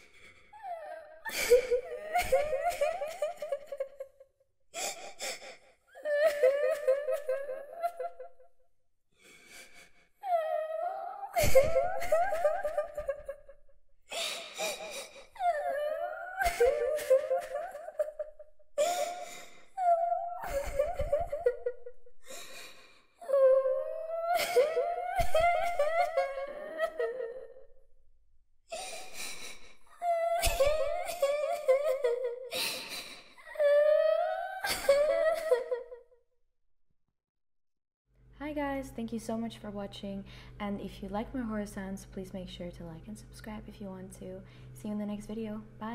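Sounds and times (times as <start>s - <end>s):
girl crying and sobbing: 0.0s - 4.2s, 4.8s - 8.4s, 9.3s - 27.7s, 28.7s - 36.0s.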